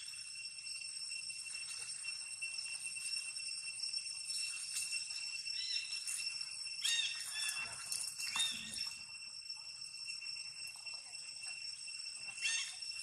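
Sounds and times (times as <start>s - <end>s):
insects droning: 0.0s - 13.0s
monkeys squealing: 6.8s - 8.8s, 12.4s - 12.8s.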